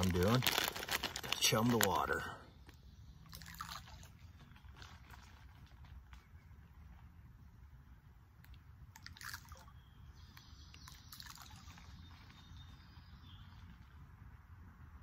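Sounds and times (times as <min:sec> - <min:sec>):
corn kernels pattering on water: 0:00.0 - 0:02.2.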